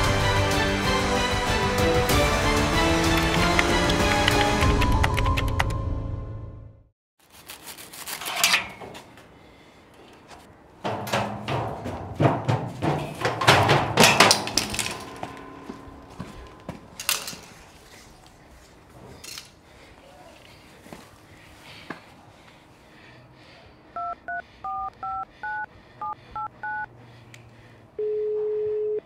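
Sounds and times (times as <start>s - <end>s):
footsteps on steel stairs: 8.6s - 20.0s
isolated knocks: 10.8s - 14.6s.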